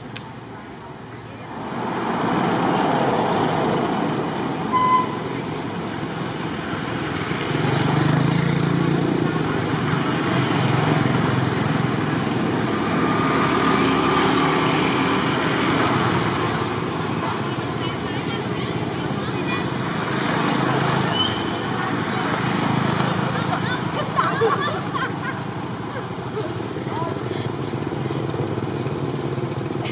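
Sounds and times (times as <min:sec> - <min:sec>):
vehicle engines running: 0:00.0 - 0:29.9
short high-pitched horn toot: 0:04.7 - 0:05.3.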